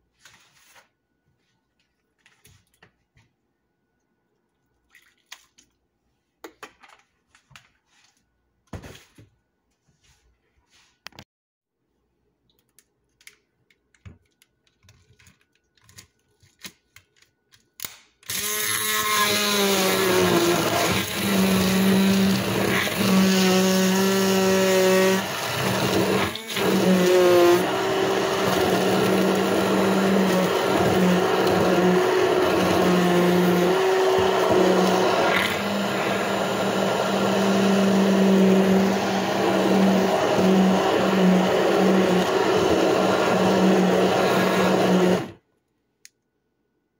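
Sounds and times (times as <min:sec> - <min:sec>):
immersion blender blending ice: 0:18.3 - 0:45.4.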